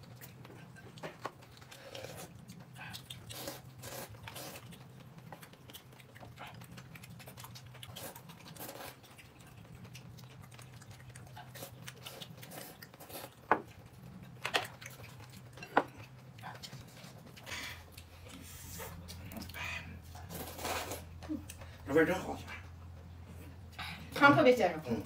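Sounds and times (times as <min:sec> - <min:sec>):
person chewing: 0:00.0 - 0:21.8
steady low hum: 0:00.0 - 0:25.0.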